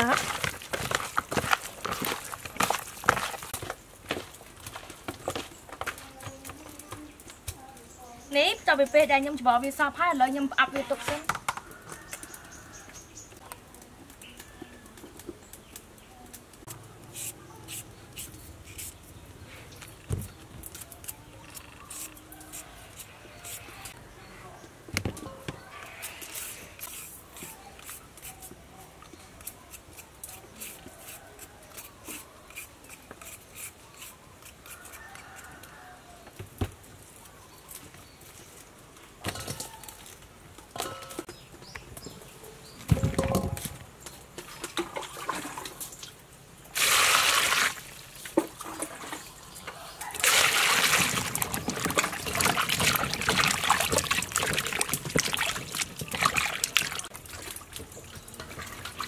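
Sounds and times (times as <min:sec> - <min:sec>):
carrot being peeled: 0:29.4 - 0:35.6
hands splashing vegetables in water: 0:46.7 - 0:49.2, 0:50.2 - 0:59.0
burst of running water: 0:46.8 - 0:48.1.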